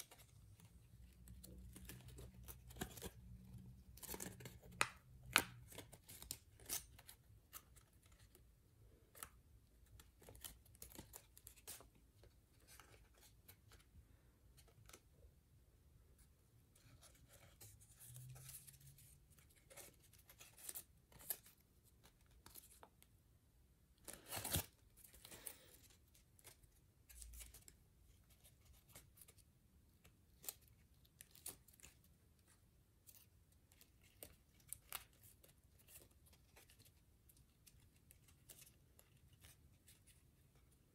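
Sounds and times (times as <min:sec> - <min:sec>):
paper being folded and creased: 0:16.8 - 0:23.0.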